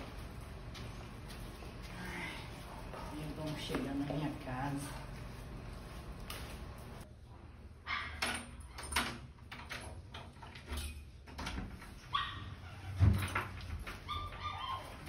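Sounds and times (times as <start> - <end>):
dog barking: 7.9 - 8.2.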